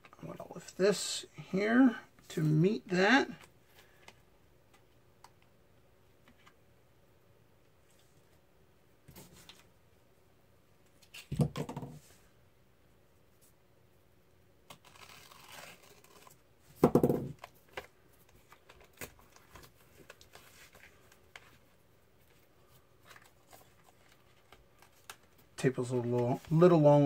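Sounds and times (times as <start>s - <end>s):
tape crinkling and rustling: 14.7s - 26.8s.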